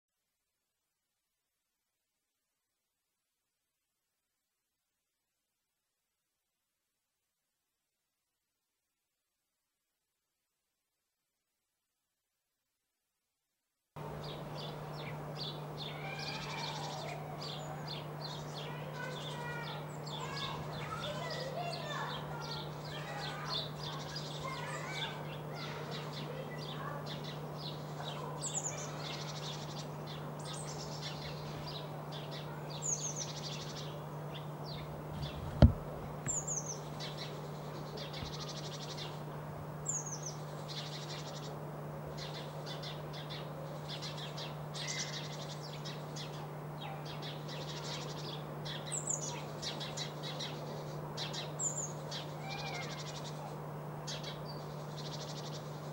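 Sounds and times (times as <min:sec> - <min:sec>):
songbirds chirping: 0:14.0 - 0:55.9
steady low hum: 0:14.0 - 0:55.9
sharp thump: 0:35.1 - 0:36.4.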